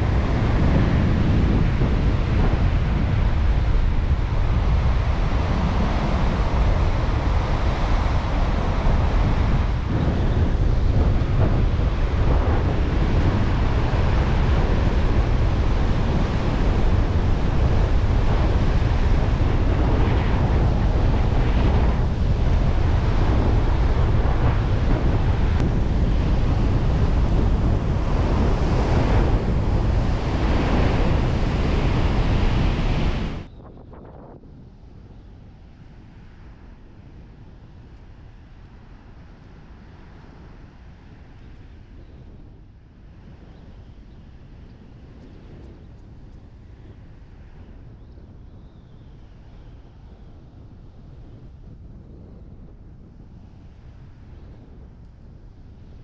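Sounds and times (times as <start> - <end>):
surf breaking on shore: 0.0 - 33.5
wind buffeting microphone: 0.0 - 56.0.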